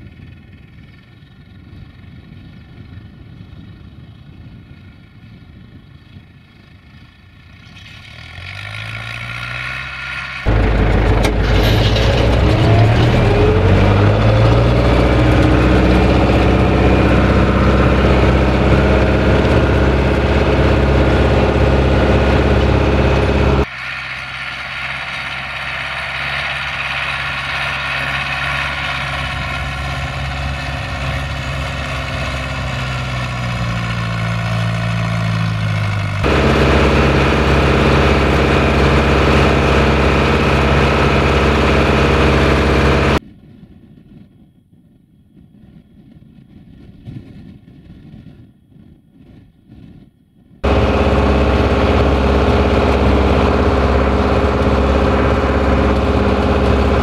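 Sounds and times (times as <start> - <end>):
tractor diesel engine running: 0.0 - 43.2, 50.6 - 57.0
harrow rattling: 10.3 - 23.7, 24.3 - 43.2, 50.6 - 57.0.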